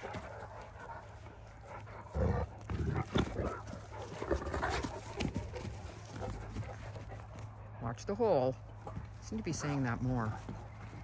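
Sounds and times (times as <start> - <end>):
puppies vocalizing: 0.0 - 8.0
puppies scuffling: 0.0 - 11.0.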